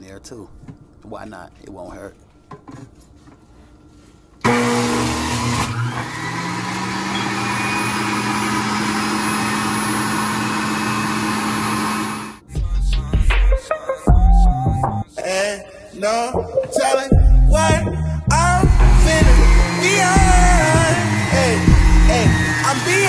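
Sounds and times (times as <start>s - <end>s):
electric juicer grinding fruit: 4.4s - 12.4s, 18.6s - 23.0s
music with heavy bass beat: 12.5s - 15.0s, 17.1s - 20.9s, 21.6s - 22.4s.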